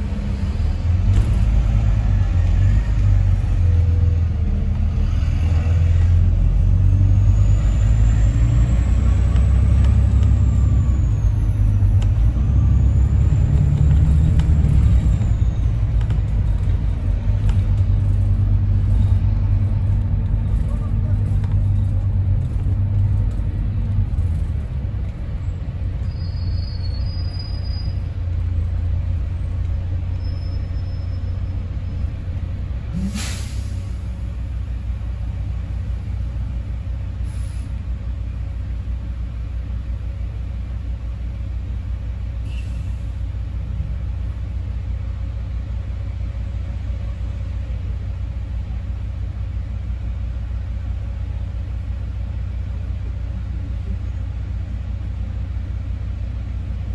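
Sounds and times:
bus engine idling: 0.0s - 56.9s
air brakes hissing: 32.9s - 34.2s, 37.2s - 37.8s, 42.4s - 43.3s.

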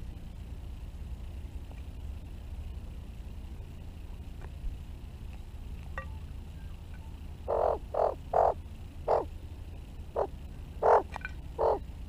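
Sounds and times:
magpie harsh croaky calls: 7.5s - 9.3s, 10.2s - 11.8s.

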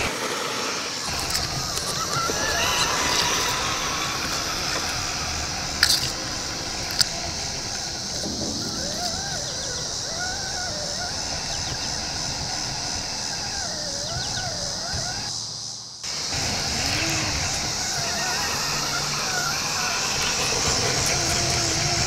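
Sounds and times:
electric motor whine: 0.0s - 15.3s, 16.0s - 22.0s
high-pitched hiss: 0.0s - 22.0s
sharp clicks: 1.0s - 9.8s.

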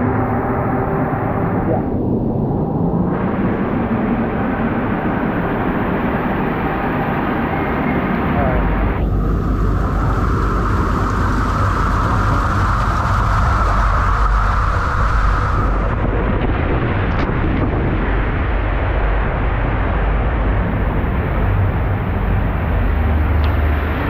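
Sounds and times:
loud low rumble: 0.0s - 24.0s
water rushing and splashing: 9.0s - 16.7s.

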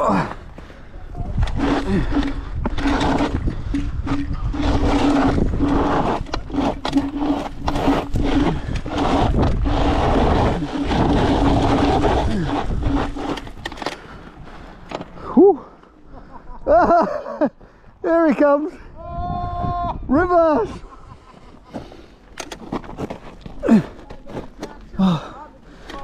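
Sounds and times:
wind and tyre noise: 0.0s - 16.8s, 17.5s - 25.0s
electric scooter motor hum: 1.2s - 15.2s.

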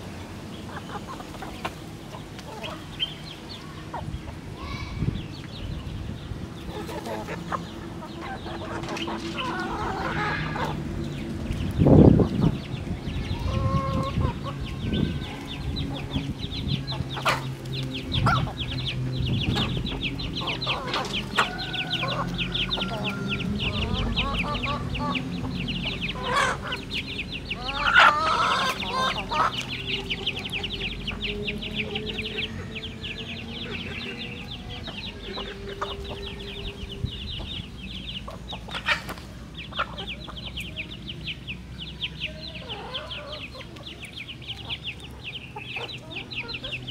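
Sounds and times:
chickens clucking softly: 6.6s - 32.6s, 33.2s - 41.4s, 42.0s - 46.9s
loud chicken call: 6.8s - 10.9s, 27.5s - 30.5s.

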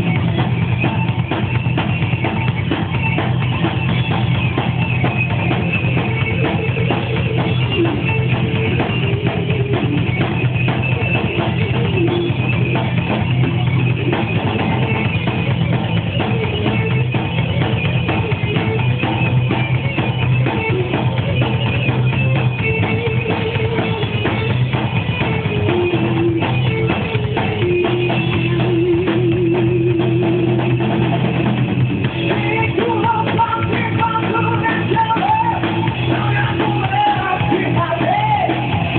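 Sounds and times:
drum kit: 0.0s - 38.9s
live band playing: 0.0s - 38.9s.

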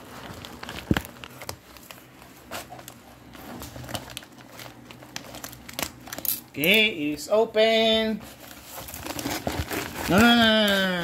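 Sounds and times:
plastic bag crinkling: 0.0s - 7.0s, 7.7s - 11.0s.

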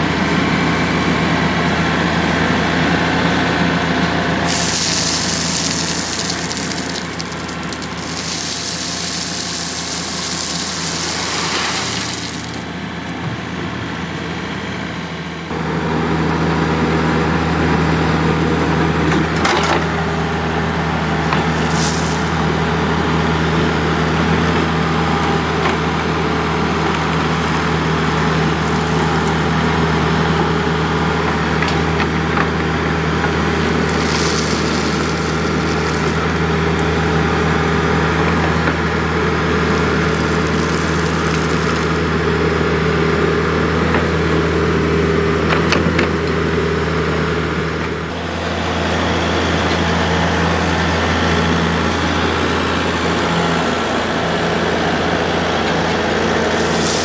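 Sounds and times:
diesel engine running: 0.0s - 57.0s
rushing hiss: 4.5s - 12.7s.

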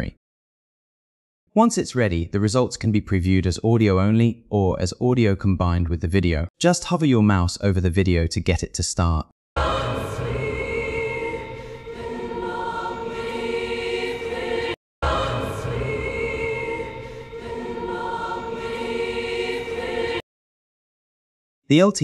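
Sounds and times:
sustained choir-like voices: 9.6s - 20.2s.

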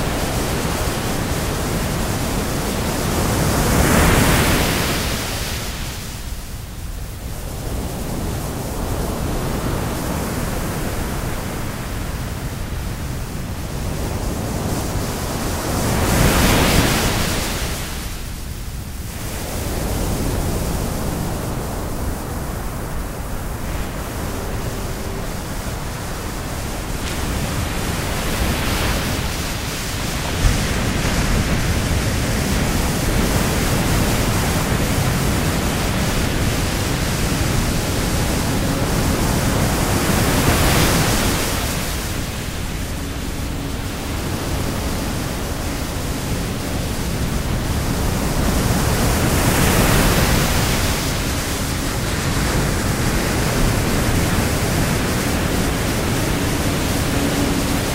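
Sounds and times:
loud rushing noise: 20.1s - 57.9s.

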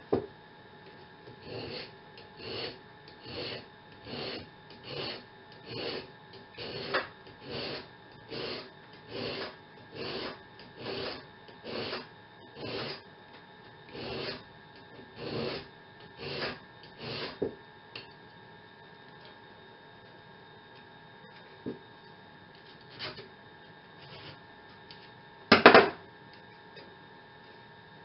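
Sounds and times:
file rasping on steel: 1.3s - 13.0s, 13.9s - 14.4s, 15.1s - 17.4s.

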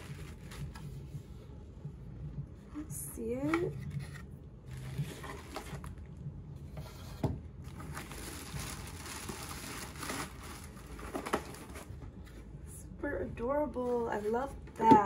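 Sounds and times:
plastic packaging crinkling: 7.7s - 12.0s.

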